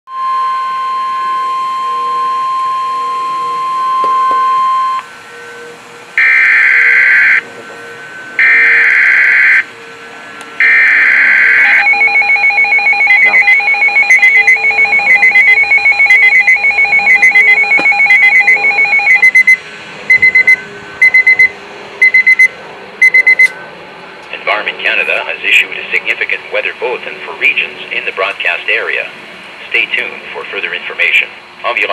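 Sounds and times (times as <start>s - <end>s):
rapid high-pitched alarm beeps: 0.1s - 23.5s
steady high tone: 0.1s - 23.8s
screeching digital data bursts: 6.2s - 23.5s.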